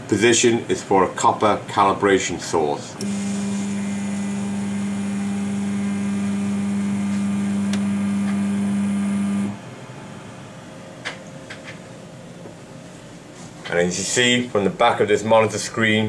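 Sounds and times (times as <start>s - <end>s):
electric motor humming: 3.0s - 9.6s.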